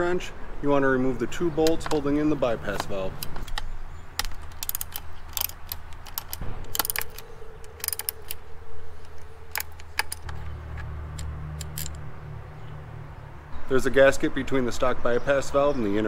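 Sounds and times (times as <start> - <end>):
ratcheting wrench clicking: 3.2 - 8.4, 9.0 - 12.0.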